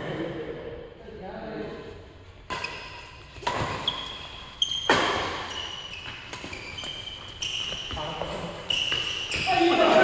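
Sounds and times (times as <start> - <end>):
rackets hitting shuttlecock: 2.4 - 8.0
shoe squeaks: 3.7 - 10.0.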